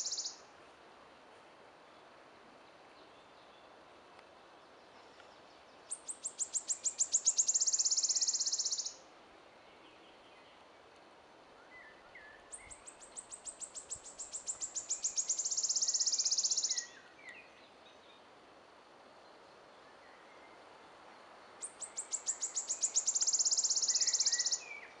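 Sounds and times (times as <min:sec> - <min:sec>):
faint bird calls: 0:00.0 - 0:00.4, 0:21.6 - 0:25.0
songbird singing trill: 0:00.0 - 0:00.5, 0:04.6 - 0:10.7, 0:11.6 - 0:18.3, 0:21.6 - 0:25.0.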